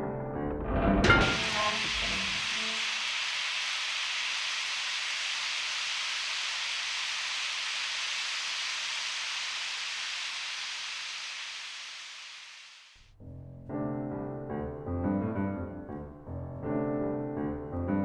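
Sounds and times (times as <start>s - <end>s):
steam hissing from a pipe: 1.2s - 13.1s.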